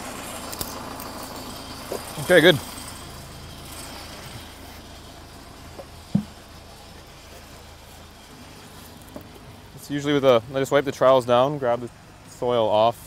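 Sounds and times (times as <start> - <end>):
drilling rig engine hum: 0.0 - 13.0
dull knock: 6.1 - 6.4.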